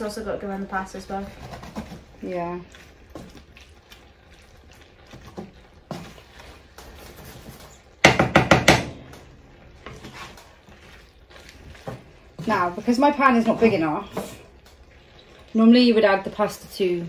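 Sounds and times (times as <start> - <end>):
spatula scraping food in pan: 1.0 - 8.0, 9.4 - 17.0
wooden spatula knocking on pan: 8.0 - 9.2.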